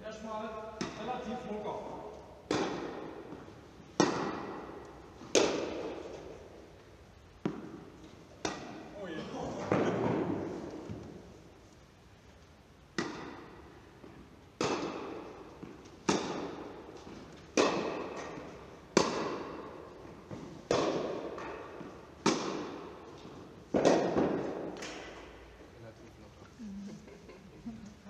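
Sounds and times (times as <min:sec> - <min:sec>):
tennis ball being struck: 0:00.8 - 0:01.3, 0:02.4 - 0:06.6, 0:07.4 - 0:08.9, 0:12.9 - 0:25.4.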